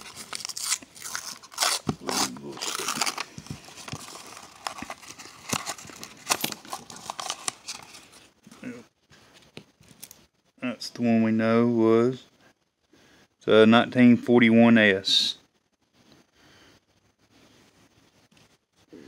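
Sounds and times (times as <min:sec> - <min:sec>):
paper wrapper crinkling and tearing: 0:00.0 - 0:08.3.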